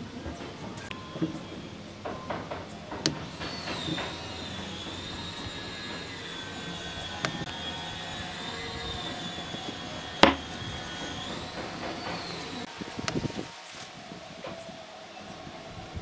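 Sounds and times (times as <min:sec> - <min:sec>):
high-pitched machine whine: 0:00.0 - 0:16.0
wooden block knocking on table: 0:10.2 - 0:10.4.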